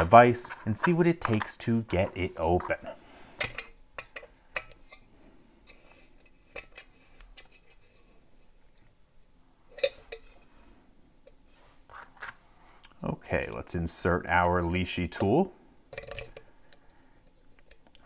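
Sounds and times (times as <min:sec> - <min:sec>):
light metallic clicks and knocks: 0:03.4 - 0:05.0.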